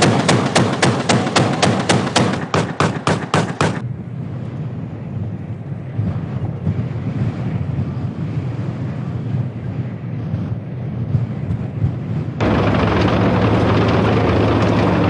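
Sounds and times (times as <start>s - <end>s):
rapid bangs: 0.0s - 3.8s, 12.4s - 15.0s
wind on microphone: 0.0s - 15.0s
tracked vehicles rumbling: 12.4s - 15.0s.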